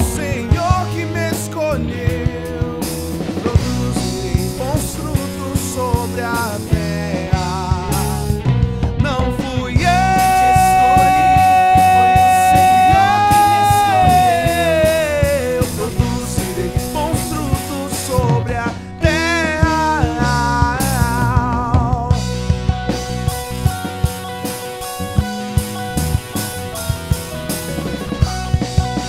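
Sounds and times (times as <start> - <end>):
rock band playing live: 0.0 - 29.0
person singing long note: 10.0 - 15.4.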